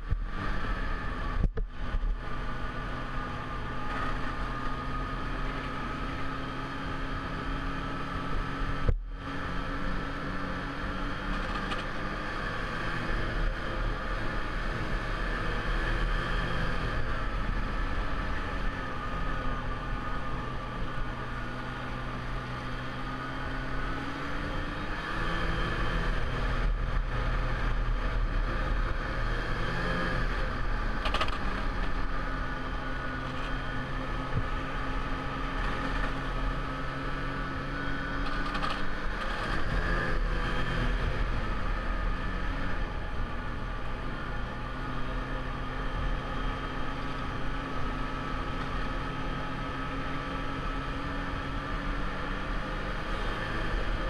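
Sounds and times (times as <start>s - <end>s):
snowmobile engine revving: 44.6s - 54.0s.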